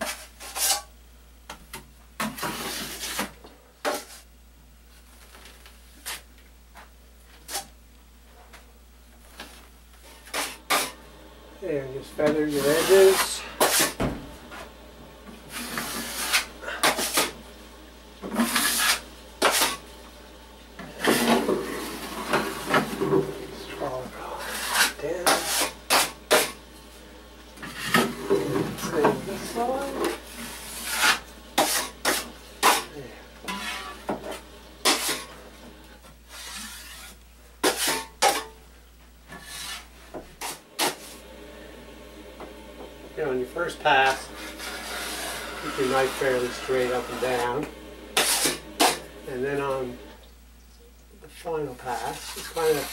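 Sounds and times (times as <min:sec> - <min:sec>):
drywall knife scraping compound: 0:00.0 - 0:00.9, 0:02.2 - 0:04.3, 0:10.1 - 0:11.0, 0:12.2 - 0:14.0, 0:15.5 - 0:17.4, 0:18.3 - 0:19.8, 0:21.0 - 0:26.6, 0:27.6 - 0:38.6, 0:39.3 - 0:41.2, 0:43.9 - 0:49.4, 0:51.8 - 0:52.9.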